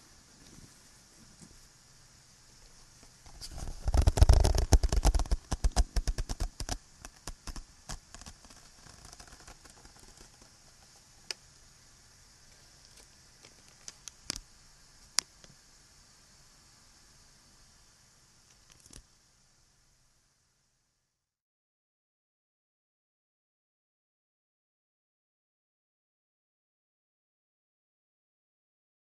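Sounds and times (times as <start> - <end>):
recording hiss: 0.0 - 21.4
clicks and taps on microphone: 3.4 - 11.4.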